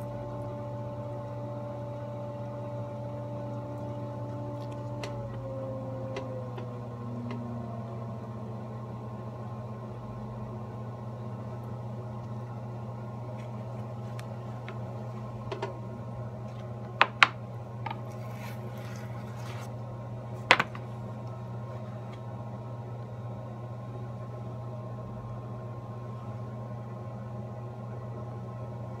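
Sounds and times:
potter's wheel humming: 0.0 - 29.0.

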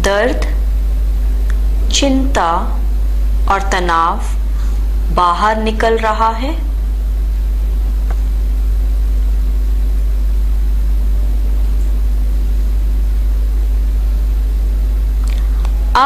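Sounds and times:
narrator speaking: 0.0 - 0.6, 1.9 - 2.8, 3.5 - 4.4, 5.1 - 6.7, 15.3 - 16.0
low hum: 0.0 - 16.0.

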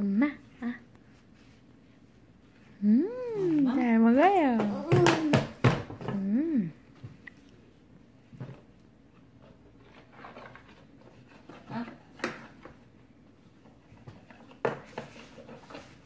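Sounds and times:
toddler vocal sound: 2.8 - 3.8, 4.5 - 6.7.

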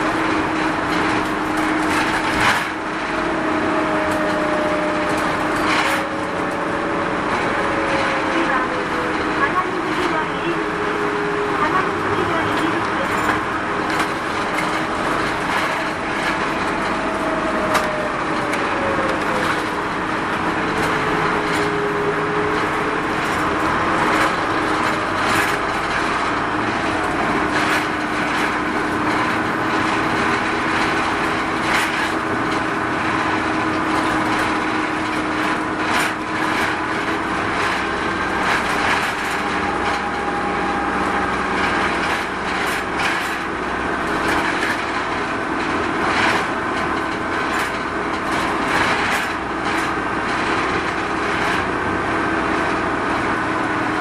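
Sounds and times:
diesel engine and road noise: 0.0 - 54.0
body rattles and clicks: 11.6 - 51.8.

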